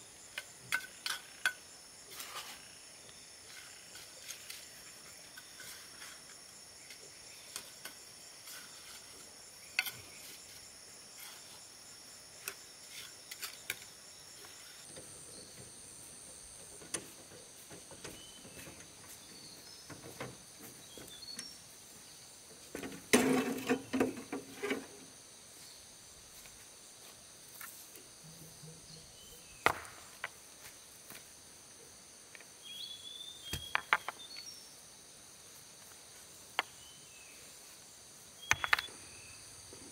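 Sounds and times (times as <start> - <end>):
insects chirring: 0.0 - 39.9
stones knocking together: 29.6 - 30.4, 38.4 - 38.9.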